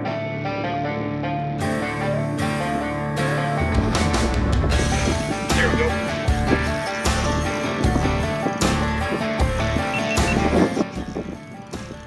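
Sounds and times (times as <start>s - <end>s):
held guitar-like notes: 0.0s - 12.0s
low bass part: 1.7s - 12.0s.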